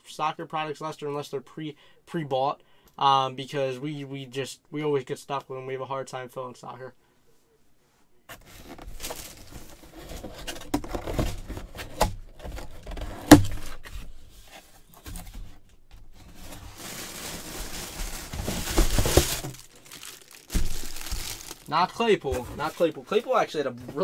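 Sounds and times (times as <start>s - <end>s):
cardboard and plastic rustling: 8.3s - 24.0s
loud plastic crinkling: 8.6s - 11.5s, 16.2s - 23.5s.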